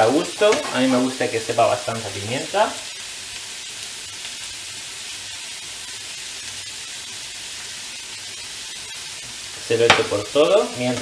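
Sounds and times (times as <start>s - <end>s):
meat sizzling in a frying pan: 0.0s - 11.0s.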